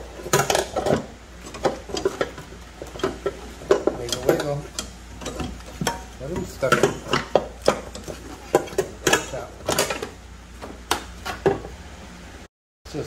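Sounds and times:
metal parts clanking: 0:00.2 - 0:10.1.

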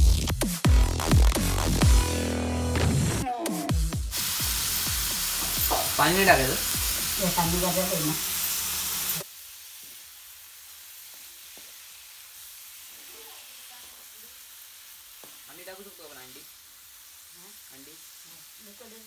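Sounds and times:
fish sizzling in hot oil: 0:04.1 - 0:19.0
steel spoon scraping: 0:07.7 - 0:09.2.

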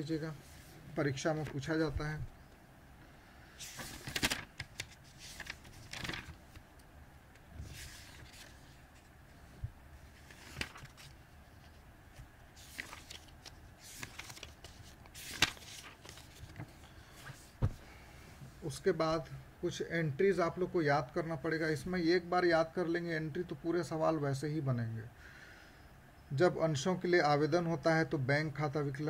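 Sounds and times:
book pages turning: 0:03.6 - 0:06.7, 0:07.6 - 0:09.1, 0:10.0 - 0:17.8.

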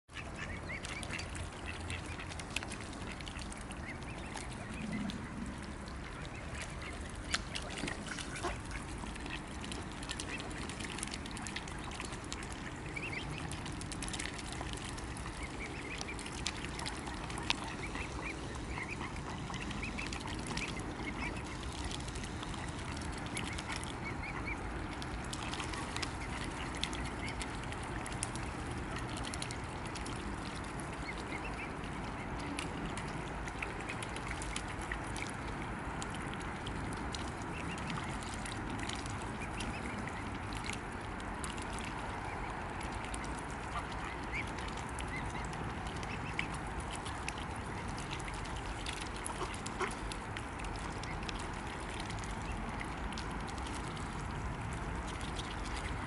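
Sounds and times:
swans dabbling and splashing: 0:00.0 - 0:56.0
soft waterfowl calls: 0:00.1 - 0:28.4, 0:41.5 - 0:53.0.

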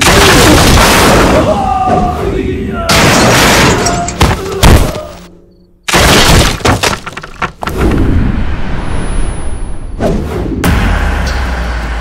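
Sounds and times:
heavy impact and crash effects: 0:07.8 - 0:12.0.

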